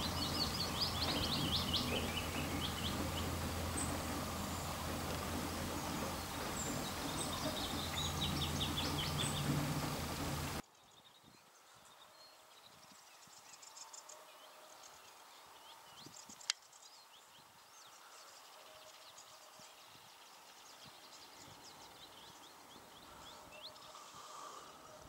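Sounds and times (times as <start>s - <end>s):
small birds chirping: 0.0s - 25.0s.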